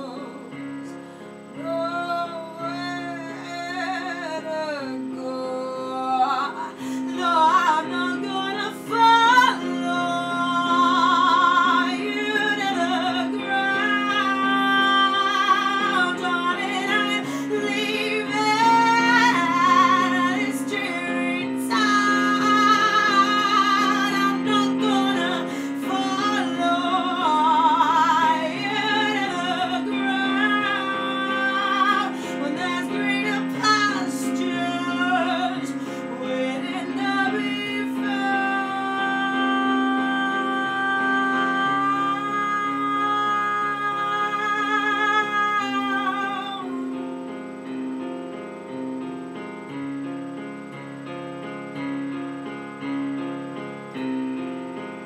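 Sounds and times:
woman singing with vibrato: 0:00.0 - 0:00.9, 0:01.5 - 0:47.0.

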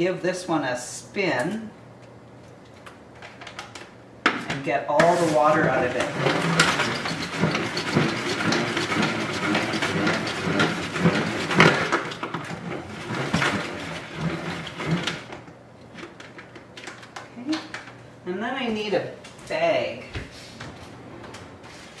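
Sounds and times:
salad spinner whirring and rattling: 0:05.4 - 0:16.4.

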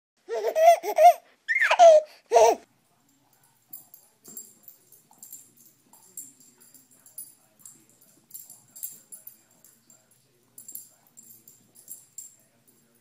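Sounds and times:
baby squealing laugh: 0:00.2 - 0:02.6
light jingling: 0:02.7 - 0:13.0.

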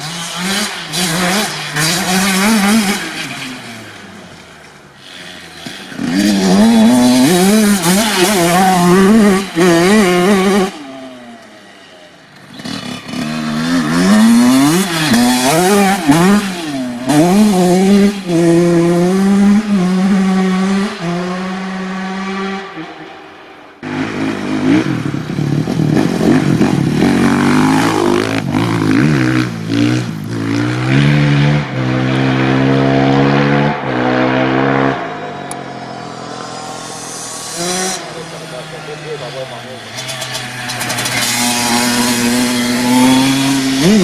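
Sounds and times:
dirt bike engine revving: 0:00.0 - 0:44.0.

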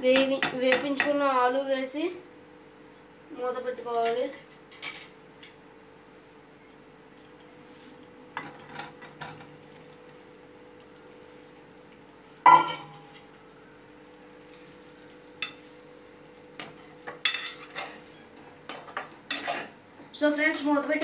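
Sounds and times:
faint sizzle: 0:00.0 - 0:21.0
spoon scraping a pan: 0:15.4 - 0:15.7, 0:16.6 - 0:19.8.

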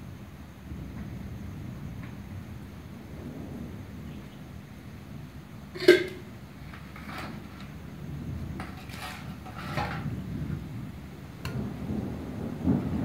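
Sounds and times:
metal spoon scraping a pot: 0:05.8 - 0:07.8, 0:08.6 - 0:10.1.

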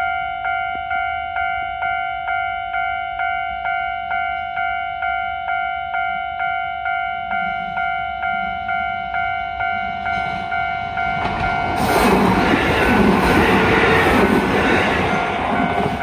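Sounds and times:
level crossing bell ringing: 0:00.0 - 0:11.8
train rumbling on rails: 0:06.9 - 0:16.0.

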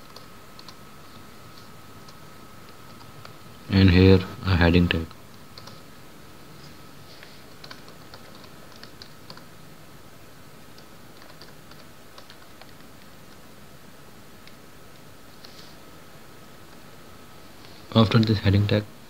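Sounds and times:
computer keyboard typing: 0:00.0 - 0:00.8, 0:05.0 - 0:05.9, 0:07.5 - 0:09.5, 0:10.7 - 0:13.5.

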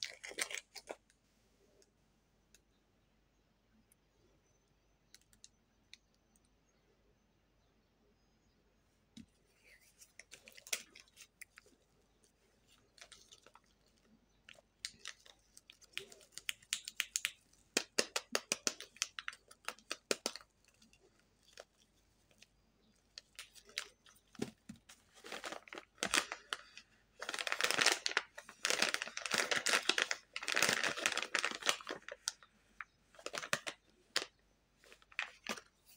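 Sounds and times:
plastic wrapper crinkling: 0:00.0 - 0:01.1, 0:10.0 - 0:35.9
packaging crackles and clicks: 0:00.0 - 0:01.2, 0:12.8 - 0:35.8.

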